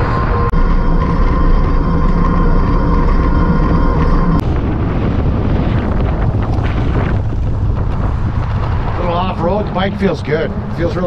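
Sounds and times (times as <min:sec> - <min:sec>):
electric motor whine: 0:00.0 - 0:04.7
wind buffeting microphone: 0:00.0 - 0:11.0.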